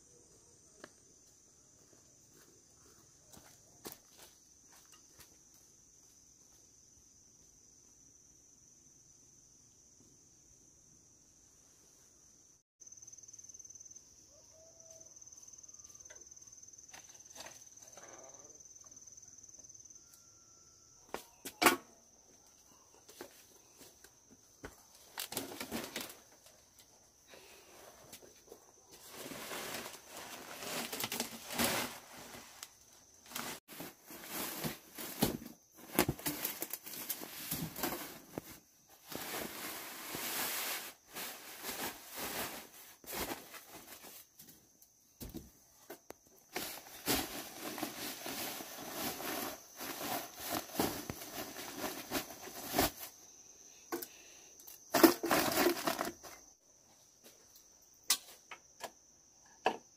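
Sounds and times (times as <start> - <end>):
rustling and crinkling: 22.7 - 53.2, 54.8 - 56.5.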